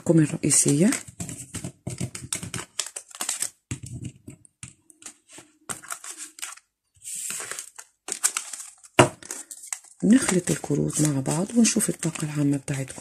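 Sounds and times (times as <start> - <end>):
cards rustling in hands: 0.2 - 13.0
cards tapping on a tabletop: 1.1 - 2.6.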